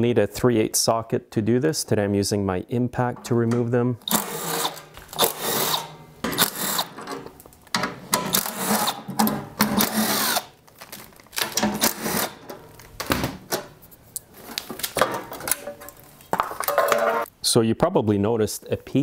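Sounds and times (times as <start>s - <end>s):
impact driver hammering: 4.1s - 7.1s.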